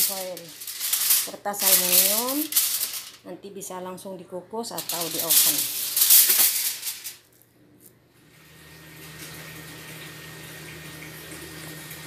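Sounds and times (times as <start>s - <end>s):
aluminium foil crinkling: 0.0s - 3.2s, 4.8s - 7.4s
low hum with faint hiss: 0.0s - 12.0s.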